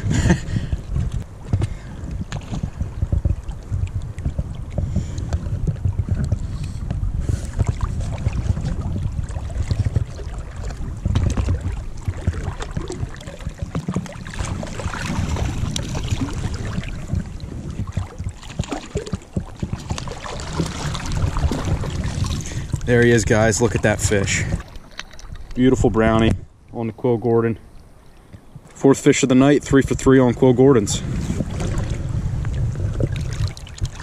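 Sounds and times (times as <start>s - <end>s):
wind buffeting microphone: 0.0s - 34.0s
fish splashing at surface: 7.6s - 22.8s.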